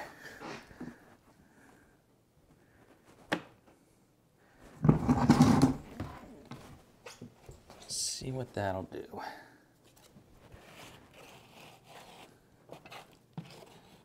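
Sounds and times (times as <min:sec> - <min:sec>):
trowel scraping a plastic bucket: 0:04.8 - 0:06.0, 0:10.5 - 0:14.0.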